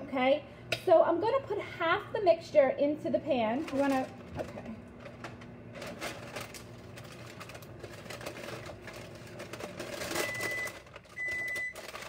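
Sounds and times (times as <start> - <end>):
microwave beeping: 4.0 - 12.0.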